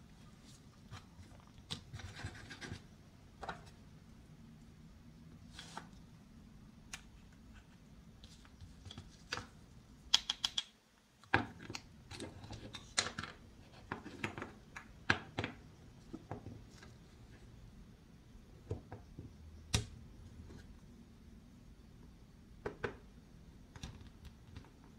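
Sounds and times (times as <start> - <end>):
wooden toy pieces clicking: 10.1 - 10.7.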